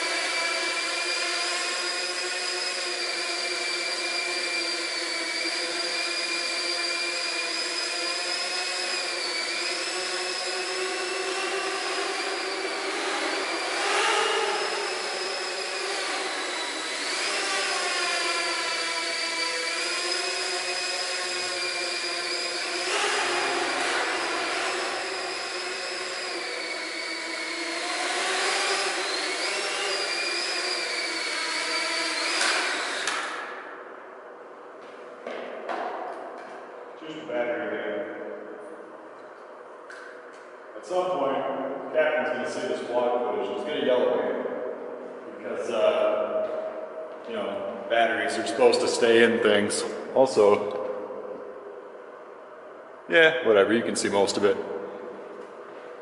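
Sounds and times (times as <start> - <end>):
drone propellers whining: 0.0 - 33.7.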